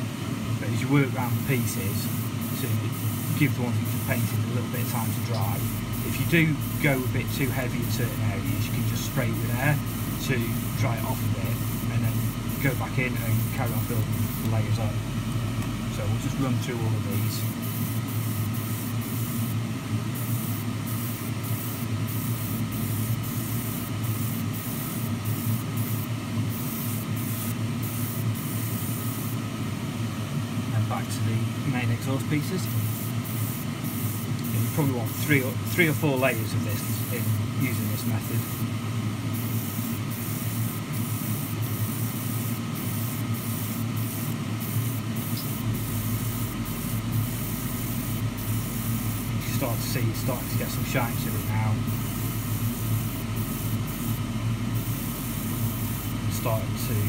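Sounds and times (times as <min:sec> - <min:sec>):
steady low hum: 0:00.0 - 0:57.0
airbrush spraying hiss: 0:00.8 - 0:29.4, 0:32.4 - 0:57.0
low hum: 0:02.1 - 0:20.3.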